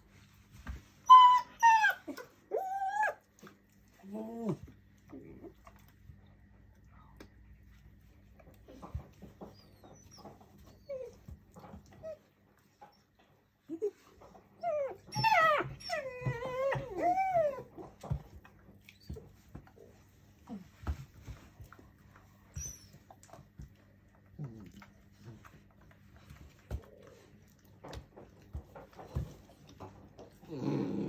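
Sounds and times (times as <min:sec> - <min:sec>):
puppy whining and yelping: 0:00.7 - 0:05.9, 0:08.7 - 0:23.8.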